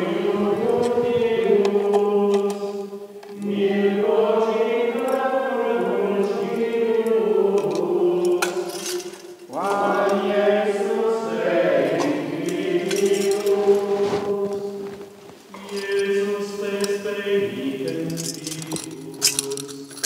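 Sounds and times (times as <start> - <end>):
men chanting plainchant: 0.0 - 13.9, 15.6 - 19.7
censer chains clinking: 7.6 - 10.4, 12.4 - 13.7, 15.5 - 20.0.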